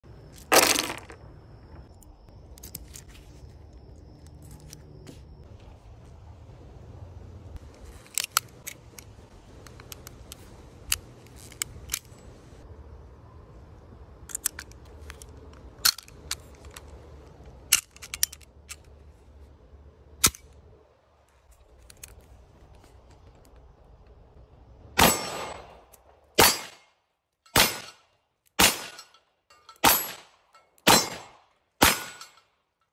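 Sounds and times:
pistol loading clicks: 7.8 - 12.3, 14.2 - 19.0
pistol shots: 25.0 - 25.8, 26.4 - 26.8, 27.6 - 28.0, 28.6 - 29.0, 29.8 - 32.3.

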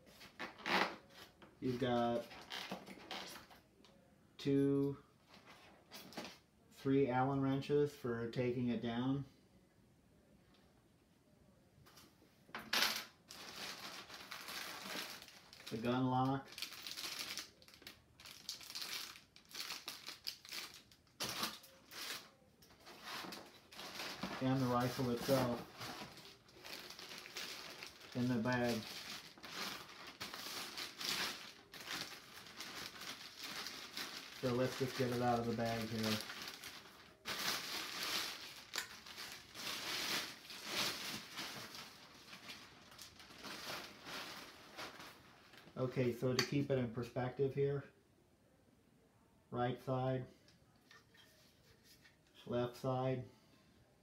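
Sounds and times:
plastic bag crinkling: 13.3 - 45.7.

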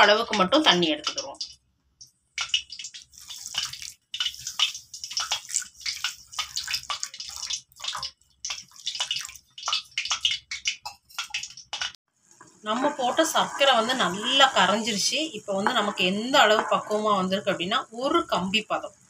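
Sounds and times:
water pouring onto sugar: 2.5 - 11.7.

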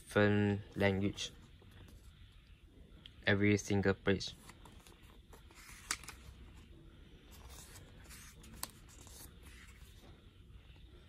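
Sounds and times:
paper pages rustling and turning: 4.3 - 10.2.

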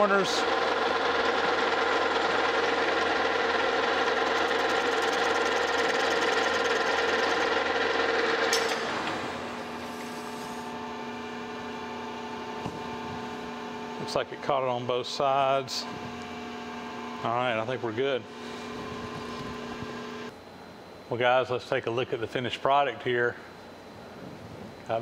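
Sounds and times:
metal lathe gear whine: 0.0 - 10.1
lathe shutting off clunk: 0.4 - 10.4.

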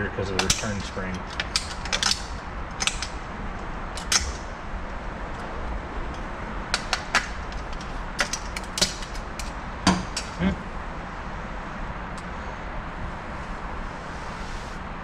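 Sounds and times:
metallic clicks and scrapes: 0.3 - 3.2, 3.9 - 4.5, 6.1 - 10.4.

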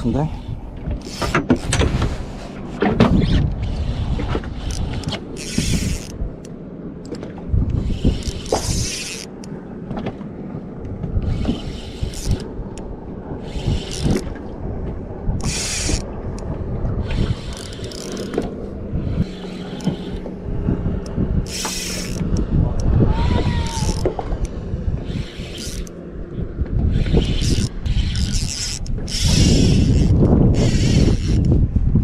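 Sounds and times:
spinning reel winding: 1.0 - 1.3, 4.6 - 6.2, 7.7 - 9.4, 11.3 - 12.5, 13.4 - 14.2, 15.4 - 16.1, 17.0 - 18.4, 19.1 - 20.2, 21.4 - 22.9, 23.5 - 24.1, 25.0 - 26.0, 26.9 - 31.6
fishing reel drag clicking: 1.0 - 1.8, 3.2 - 9.5, 11.2 - 12.8, 13.4 - 14.3, 15.4 - 20.3, 21.0 - 26.0, 26.9 - 31.6.

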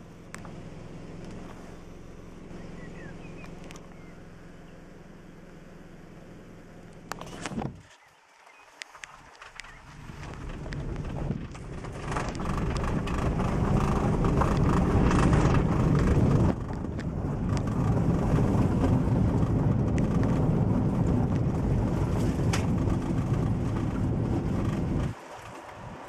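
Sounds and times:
car engine and tyre noise: 0.0 - 26.0.

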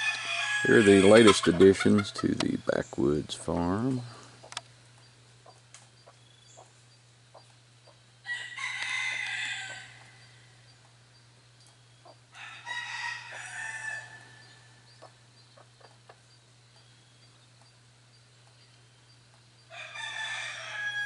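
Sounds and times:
rooster crowing: 0.0 - 1.4, 8.2 - 10.6, 12.3 - 14.9, 19.7 - 21.0.

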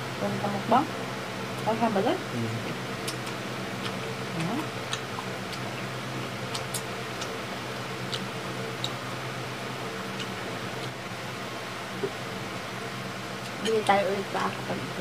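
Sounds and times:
background hum: 0.0 - 15.0
people chewing food: 2.4 - 11.1.

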